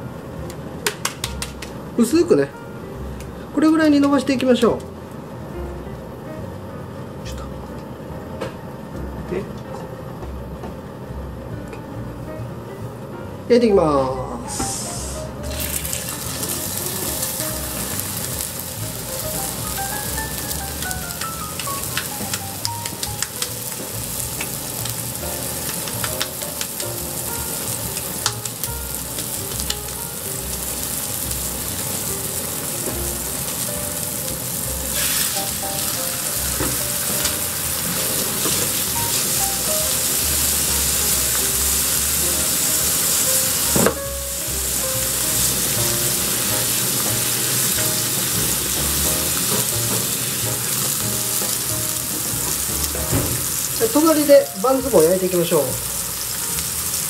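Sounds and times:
patties sizzling in skillet: 14.5s - 57.0s.

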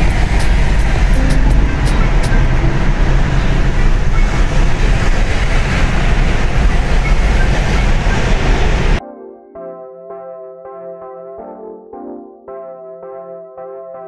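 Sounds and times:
vehicle road noise: 0.0s - 9.0s
soft synthesizer music: 0.0s - 14.0s.

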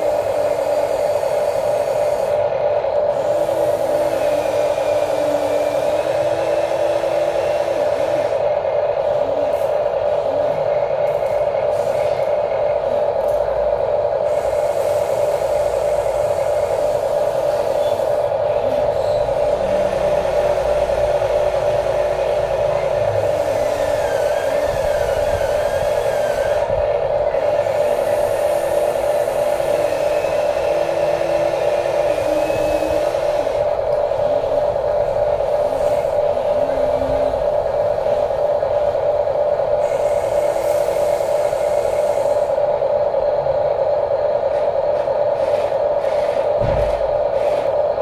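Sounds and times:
motor whines wavering in pitch: 0.0s - 11.3s, 14.3s - 39.0s
electric motors whirring: 0.0s - 48.0s.

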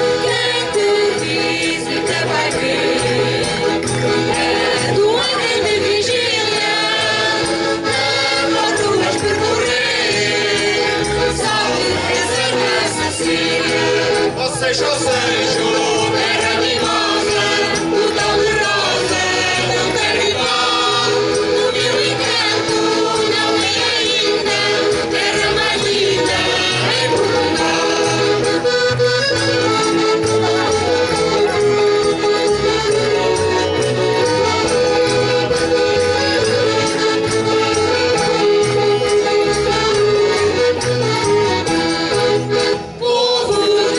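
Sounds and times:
mixed choir singing: 0.0s - 28.7s
accordion: 0.0s - 43.9s
guitars: 0.0s - 43.9s.

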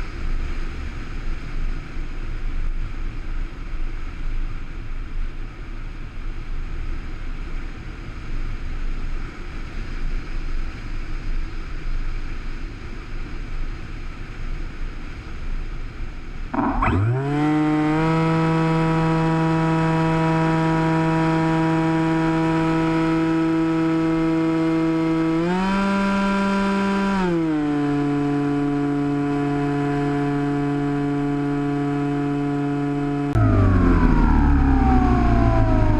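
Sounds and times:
electric motor propeller whine: 16.5s - 35.9s.

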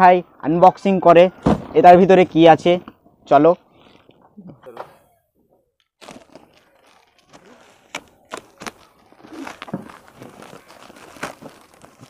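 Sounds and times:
plastic bag crinkling and tearing: 5.8s - 12.0s
plastic snapping: 5.8s - 12.0s.

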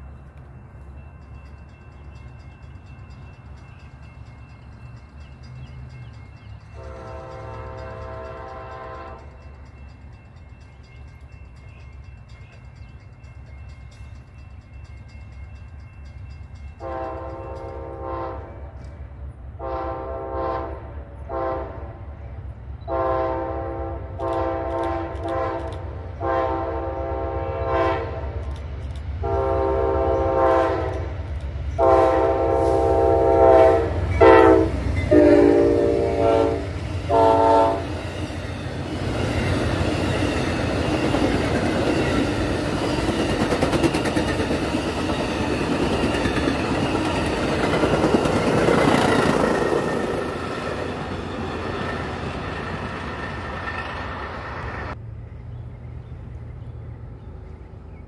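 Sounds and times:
train wheels rushing on rails: 0.0s - 55.0s
locomotive air horn blasts: 6.8s - 9.3s, 16.8s - 18.7s, 19.6s - 22.0s, 22.9s - 28.4s, 29.2s - 31.2s, 31.8s - 37.9s.

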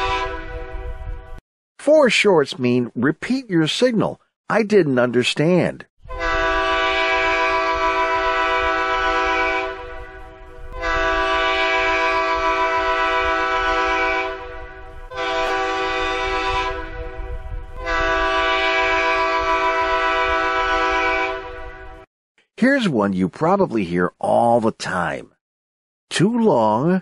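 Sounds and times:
locomotive air horn blasts: 0.0s - 1.4s, 6.0s - 22.1s.

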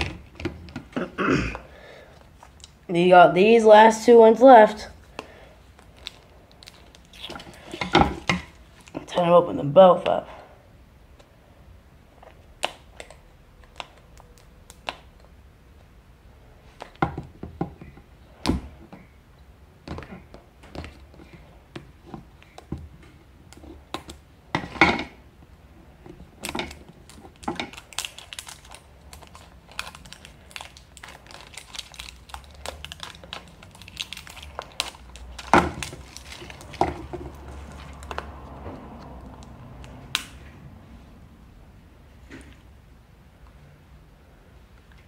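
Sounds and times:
plastic wrappers crinkling: 5.0s - 9.2s, 26.2s - 38.4s.

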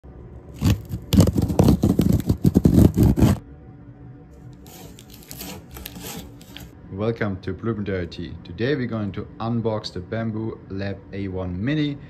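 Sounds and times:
tape and cardboard rustling: 0.6s - 3.4s, 4.6s - 6.7s.

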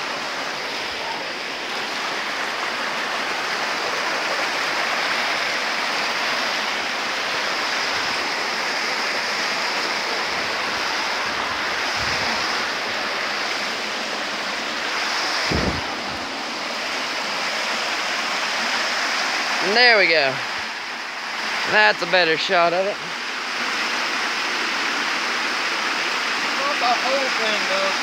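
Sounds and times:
creek water rushing over rocks: 0.0s - 28.0s
low thump: 15.5s - 16.2s.

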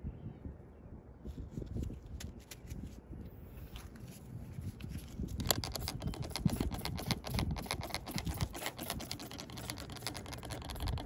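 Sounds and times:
sanding pad scratching plastic: 5.4s - 11.0s.

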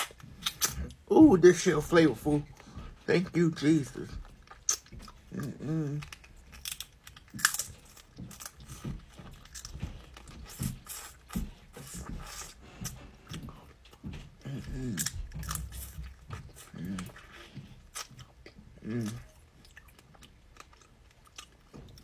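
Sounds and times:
person humming: 5.3s - 6.2s, 14.4s - 15.1s, 18.8s - 19.4s.

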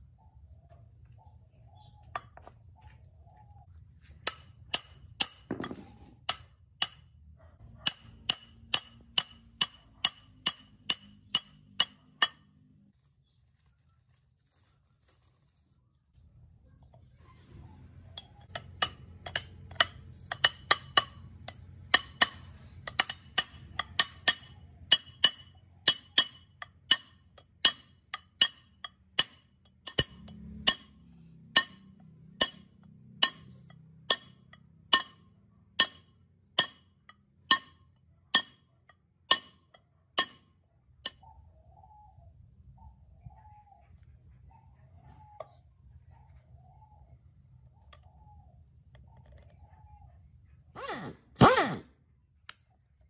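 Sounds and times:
hammer tapping metal pipe: 7.8s - 12.5s, 18.3s - 38.6s, 39.3s - 41.2s.

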